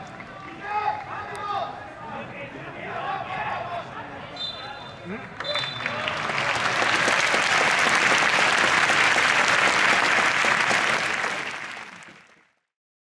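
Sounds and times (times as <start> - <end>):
crowd applauding: 5.3 - 12.6.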